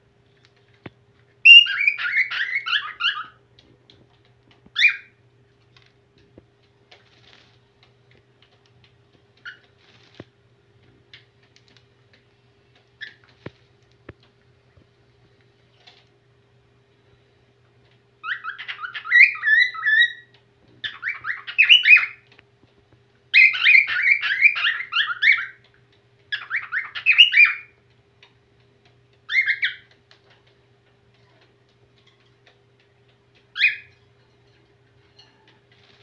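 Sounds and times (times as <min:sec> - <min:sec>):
cockatiel call: 0:01.4 - 0:03.4, 0:04.8 - 0:05.1, 0:18.2 - 0:22.2, 0:23.3 - 0:25.6, 0:26.3 - 0:27.7, 0:29.3 - 0:29.9, 0:33.6 - 0:33.9
cockatiel whistling song: 0:01.4 - 0:03.4, 0:04.8 - 0:05.1, 0:18.2 - 0:22.2, 0:23.3 - 0:25.6, 0:26.3 - 0:27.8, 0:29.3 - 0:29.9, 0:33.6 - 0:33.9.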